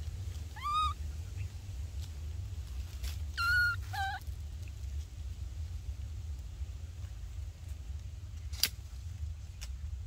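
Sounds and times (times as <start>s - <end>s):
baby monkey high calls: 0.4s - 1.0s, 3.3s - 4.3s.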